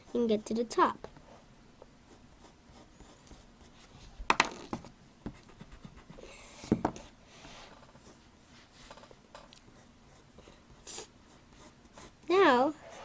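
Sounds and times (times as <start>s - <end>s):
pencil scratching on paper: 2.1s - 3.9s, 5.3s - 6.8s, 9.7s - 13.0s
rub on paper: 9.7s - 13.0s.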